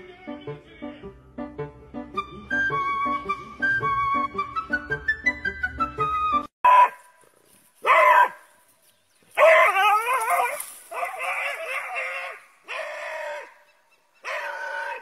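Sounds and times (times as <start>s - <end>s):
light background music: 0.0s - 6.5s
puppy yelping and howling: 9.4s - 13.4s.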